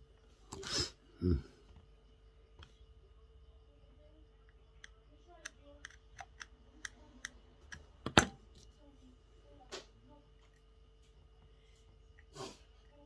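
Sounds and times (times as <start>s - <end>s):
screwdriver clicking on circuit board: 4.8s - 7.8s.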